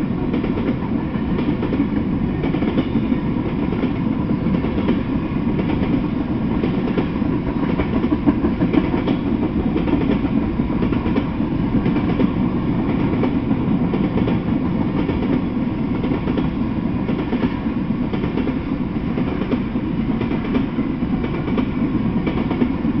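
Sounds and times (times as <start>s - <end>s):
steel wheels rolling on rail: 0.0s - 23.0s.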